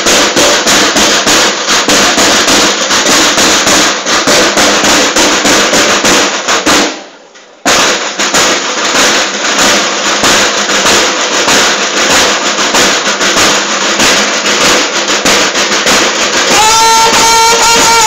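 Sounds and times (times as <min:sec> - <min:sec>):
marching snare drums: 0:00.0 - 0:18.0
bugle held note: 0:16.5 - 0:18.0.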